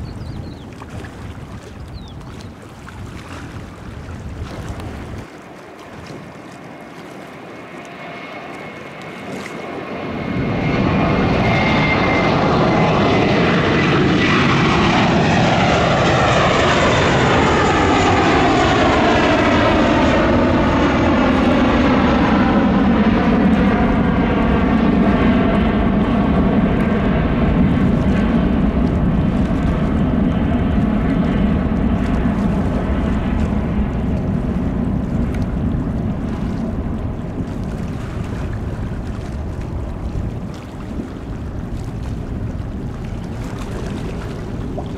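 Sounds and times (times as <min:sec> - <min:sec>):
jet airliner taking off: 0:07.4 - 0:40.4.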